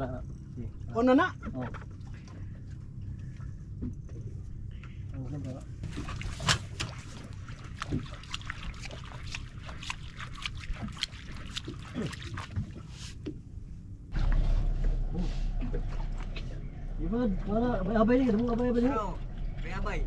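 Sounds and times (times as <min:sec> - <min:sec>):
steady low background noise: 0:13.4 - 0:20.0
loud low rumble: 0:14.0 - 0:20.0.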